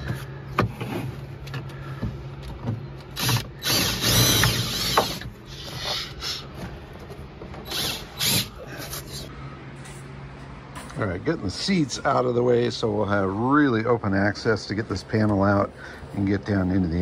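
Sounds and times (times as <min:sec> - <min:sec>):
cordless drill drilling rivets: 0:03.1 - 0:06.4, 0:07.6 - 0:08.5.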